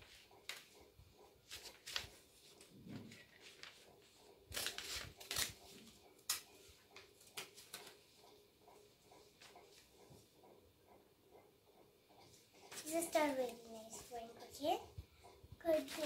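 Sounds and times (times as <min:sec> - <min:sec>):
paper rustling: 0:01.4 - 0:06.4, 0:15.7 - 0:16.0
scissors snipping paper: 0:04.5 - 0:08.0.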